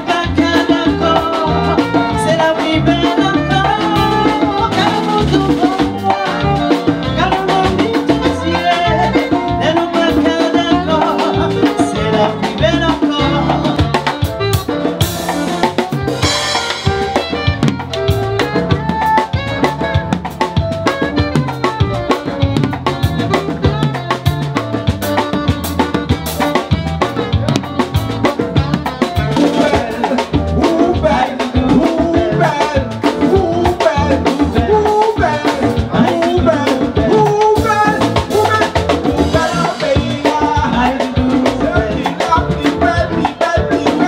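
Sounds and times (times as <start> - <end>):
drum kit beat: 0.0 - 44.0
live band playing: 0.0 - 44.0
voices singing: 29.0 - 44.0.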